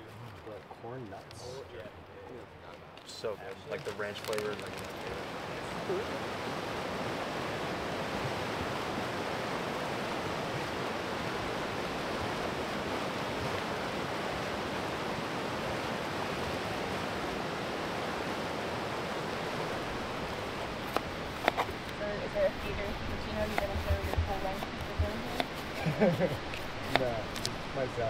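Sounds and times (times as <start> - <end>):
fast-flowing water rushing: 0.0 - 28.0.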